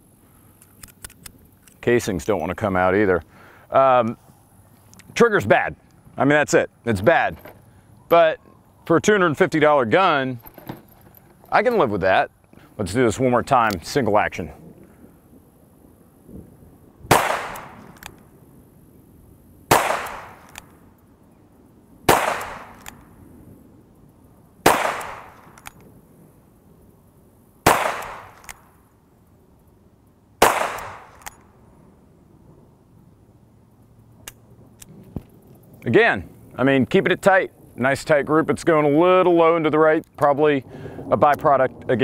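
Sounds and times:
revolver shots echoing: 0:17.1 - 0:18.0, 0:19.7 - 0:20.6, 0:22.1 - 0:23.0, 0:24.7 - 0:25.6, 0:27.7 - 0:28.6, 0:30.4 - 0:31.2.

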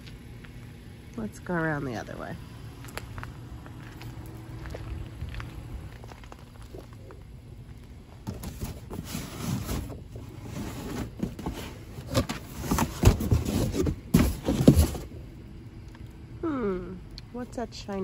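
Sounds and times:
cardboard and plastic bags rustling: 0:07.8 - 0:15.2.

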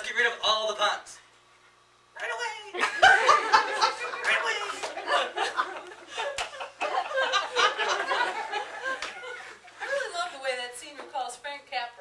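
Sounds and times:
audience laughing: 0:02.8 - 0:10.1.

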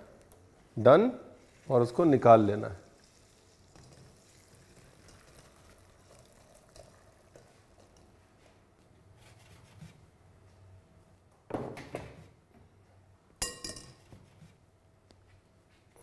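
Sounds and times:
water trickling and dripping: 0:01.4 - 0:08.1.

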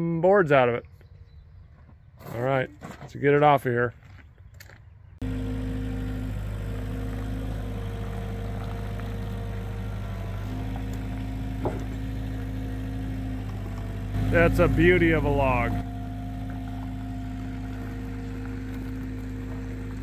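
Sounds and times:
loader engine running: 0:05.2 - 0:20.0.

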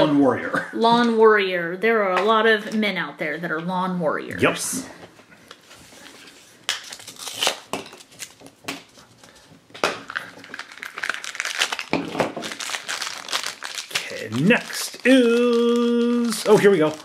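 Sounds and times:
plastic packaging clicks and crinkles: 0:06.2 - 0:17.0.

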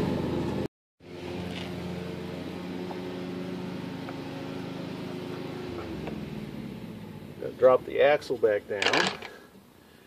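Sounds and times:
motor humming: 0:01.0 - 0:07.9.

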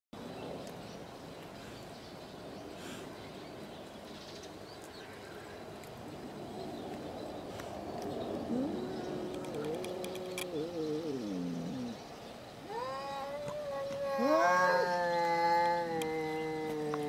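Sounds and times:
cat yowling: 0:12.7 - 0:17.0.

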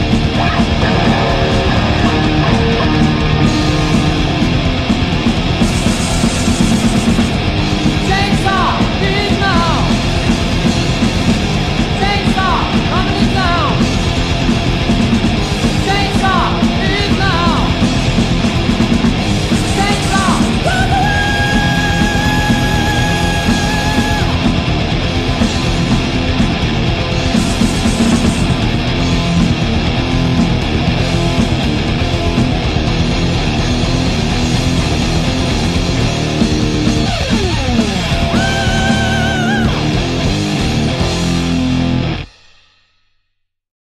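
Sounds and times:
high guitar note: 0:00.0 - 0:07.0
heavy metal song on electric guitars: 0:00.0 - 0:42.4.

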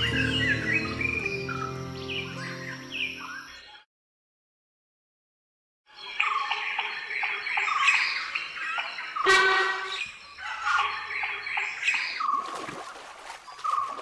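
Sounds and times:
birds chirping: 0:00.0 - 0:03.8, 0:05.9 - 0:14.0.

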